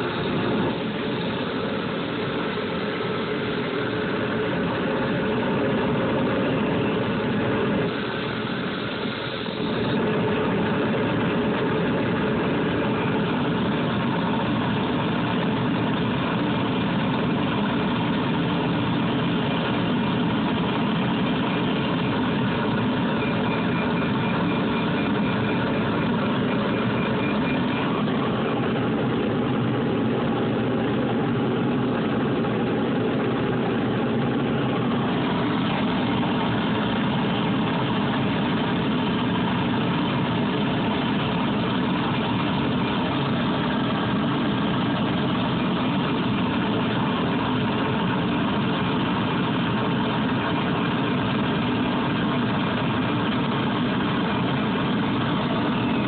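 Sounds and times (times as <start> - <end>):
lathe running: 0.0 - 56.0.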